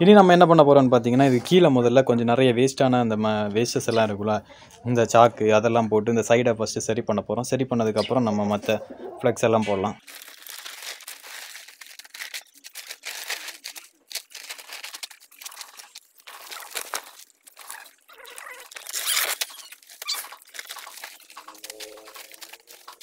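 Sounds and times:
plastic sheeting rustling and crinkling: 10.0s - 23.0s.

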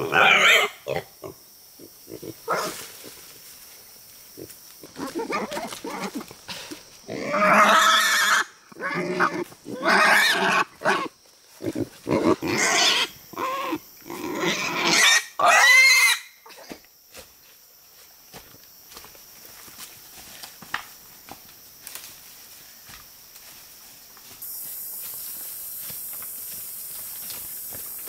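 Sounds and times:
wild boar grunting and squealing: 0.0s - 3.2s, 4.4s - 16.7s.

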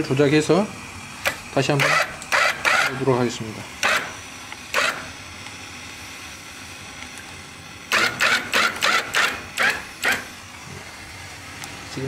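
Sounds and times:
actuator running: 0.0s - 12.0s
short harsh mechanical noises: 1.2s - 3.1s, 3.8s - 5.2s, 7.9s - 10.8s.

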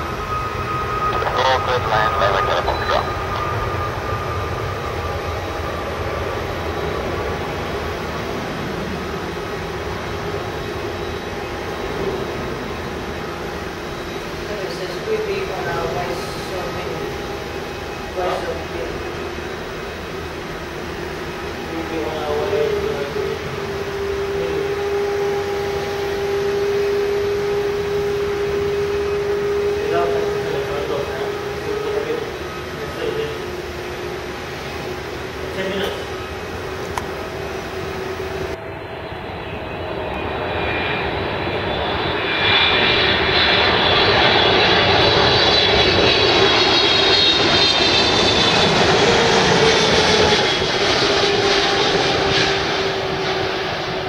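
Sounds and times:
jet engines at takeoff power: 0.0s - 54.0s.

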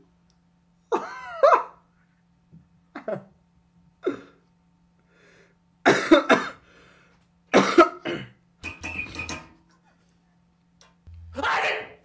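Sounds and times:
person's stifled cough-like outbursts: 5.9s - 6.6s, 7.5s - 8.4s.

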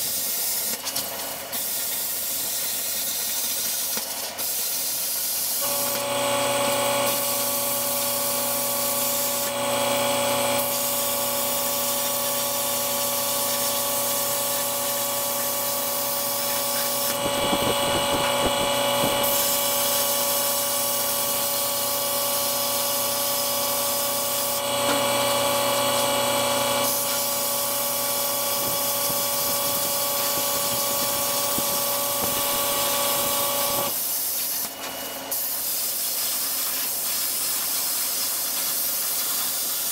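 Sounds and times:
plasma cutter arc hissing: 0.0s - 39.9s
machine whine: 5.6s - 34.0s.

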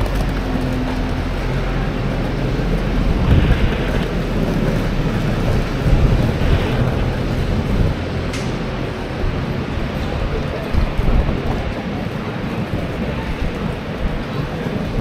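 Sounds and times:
idling buses and traffic rumble: 0.0s - 15.0s
wind noise on microphone: 0.0s - 15.0s.

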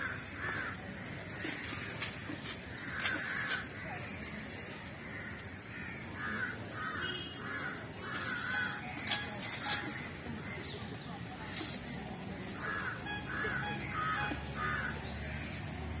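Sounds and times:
crows cawing: 0.0s - 2.0s, 2.8s - 3.9s, 5.0s - 10.7s, 12.6s - 15.1s.

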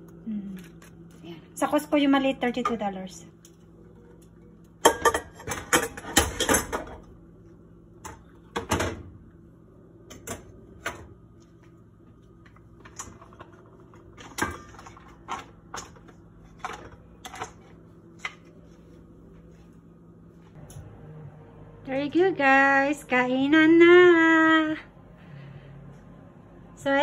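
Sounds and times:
faint steady hum: 0.0s - 27.0s
dish and utensils clattering: 4.8s - 7.0s.

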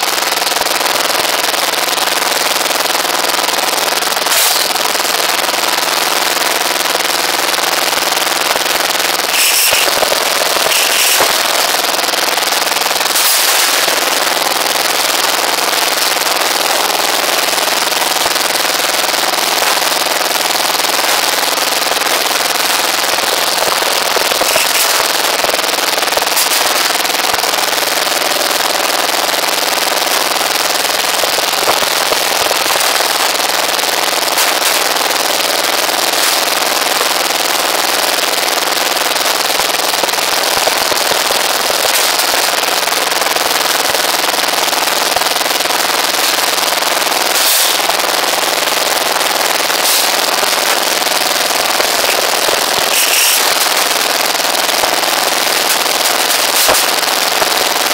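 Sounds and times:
metal clanks of steel bars: 9.4s - 10.0s, 24.4s - 25.2s, 52.1s - 53.8s.

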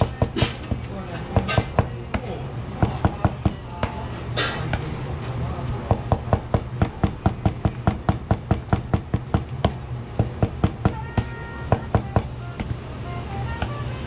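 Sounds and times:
knife chopping on cutting board: 5.7s - 12.7s.

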